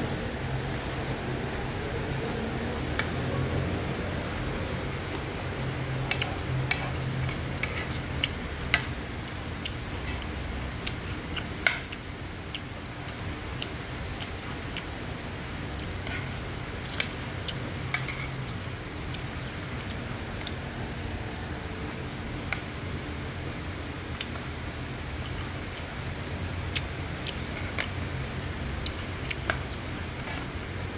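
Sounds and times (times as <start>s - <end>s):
steady low hum: 0.0s - 30.9s
spoon stirring rice in a pan: 17.9s - 18.4s.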